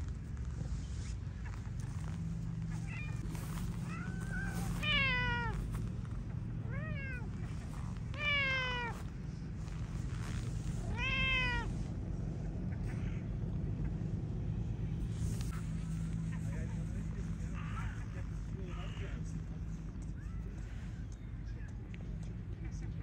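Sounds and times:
low background rumble: 0:00.0 - 0:23.0
cat meowing: 0:02.7 - 0:11.9.

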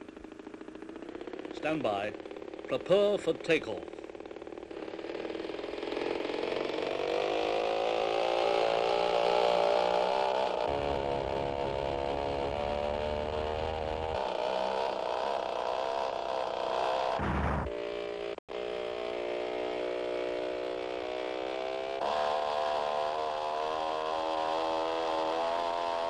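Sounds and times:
propeller aeroplane engine: 0:00.0 - 0:07.3
deep rumble: 0:17.2 - 0:17.8.

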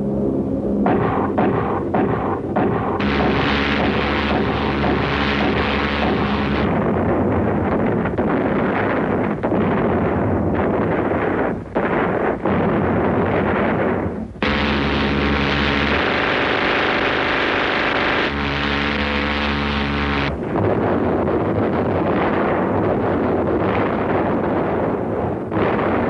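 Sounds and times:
rumble of explosions: 0:00.0 - 0:26.0
gatling gun firing: 0:00.9 - 0:20.8.

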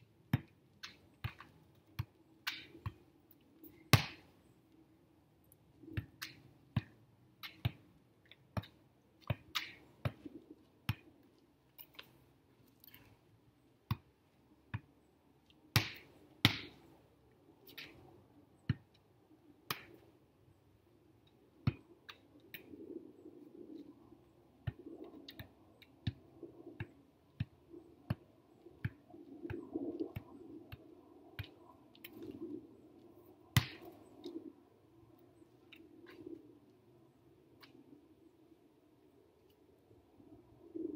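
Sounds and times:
volleyball slapping off forearms: 0:04.0 - 0:04.3, 0:15.7 - 0:16.8, 0:33.6 - 0:33.9.

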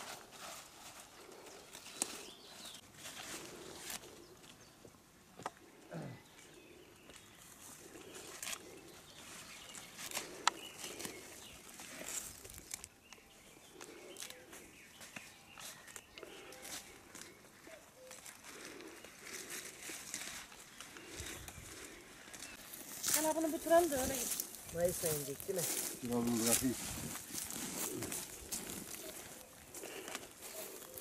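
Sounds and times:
birds calling: 0:01.0 - 0:31.0
leaves rustling and snapping: 0:09.7 - 0:13.2.

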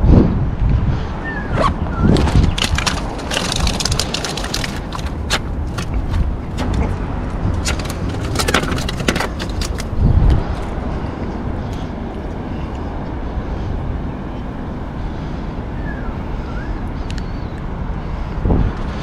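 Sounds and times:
wind rumble on microphone: 0:00.0 - 0:19.0
bag rustling and clicking: 0:02.2 - 0:06.7, 0:07.6 - 0:09.9.

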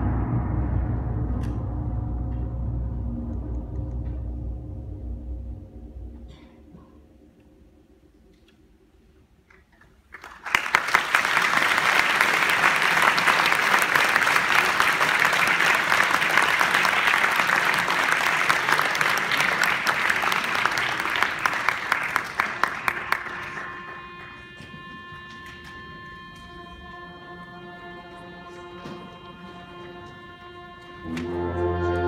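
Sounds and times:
audience applause: 0:09.5 - 0:24.9
concert band held note: 0:21.7 - 0:26.8.

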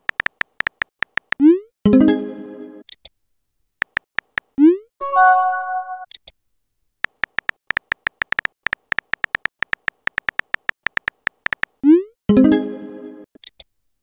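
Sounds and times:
keyboard tap clicks: 0:00.0 - 0:01.4, 0:03.8 - 0:04.5, 0:07.0 - 0:11.7
app chime: 0:05.0 - 0:06.1.

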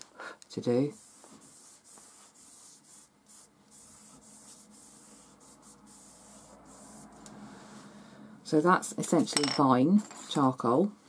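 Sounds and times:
charcoal scratching on paper: 0:00.8 - 0:07.3.

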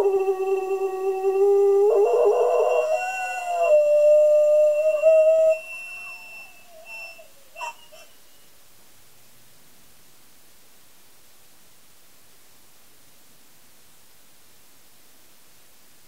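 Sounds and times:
dog howling: 0:00.0 - 0:08.1.

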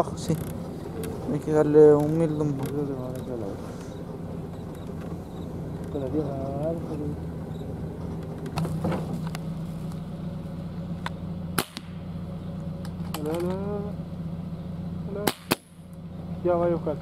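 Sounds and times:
truck engine idling: 0:00.0 - 0:17.0
gunshot: 0:15.2 - 0:15.7.

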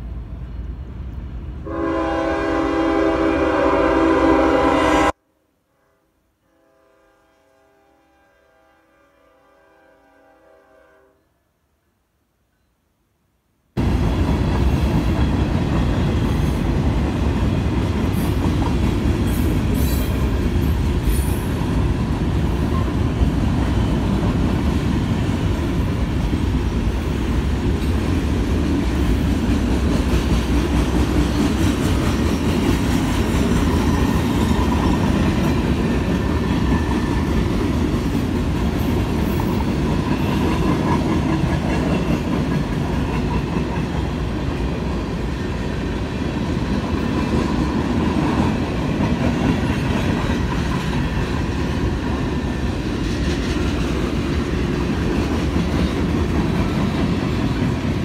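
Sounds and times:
freight train wheels rumbling: 0:13.8 - 0:58.0.

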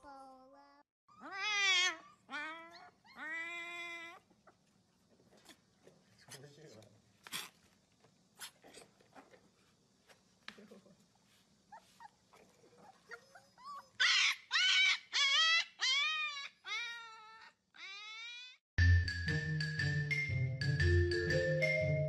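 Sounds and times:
pet whining cries: 0:01.1 - 0:04.6, 0:12.8 - 0:18.6.

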